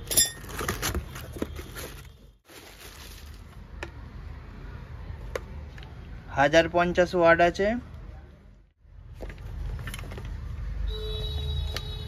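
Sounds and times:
plastic packaging crinkling: 0.4 - 3.6.

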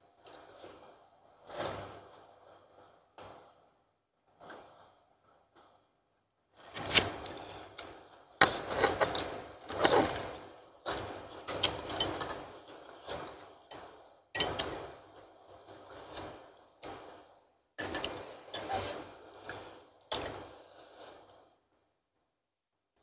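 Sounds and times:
slurping and chewing noodles: 6.7 - 17.2.

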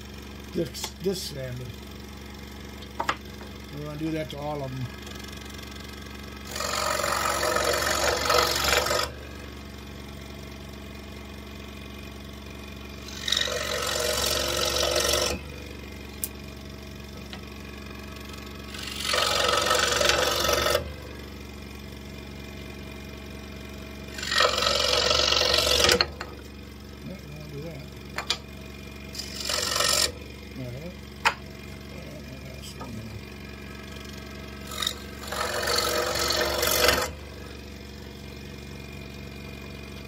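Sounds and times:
scroll saw humming: 0.0 - 40.0
saw blade cutting wood: 6.4 - 9.4, 13.0 - 15.7, 18.3 - 21.0, 24.1 - 26.4, 29.1 - 30.3, 34.6 - 37.6.

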